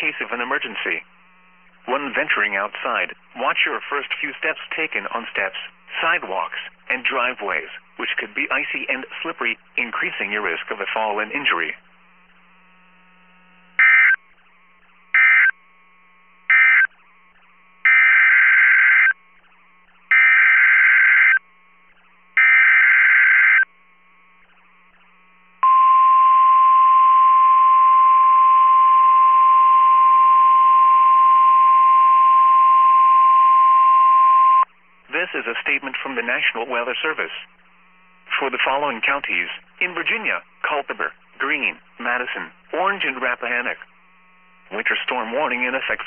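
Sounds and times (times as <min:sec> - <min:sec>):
steady warning alarm tone: 0:10.0 - 0:35.0
screeching data bursts: 0:13.8 - 0:15.6, 0:16.5 - 0:25.4.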